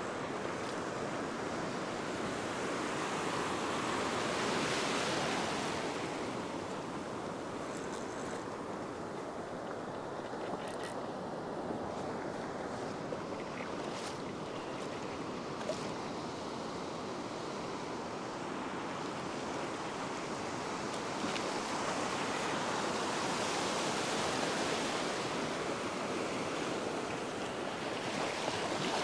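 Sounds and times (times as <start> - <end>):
small waves washing on sand: 0.0 - 29.0.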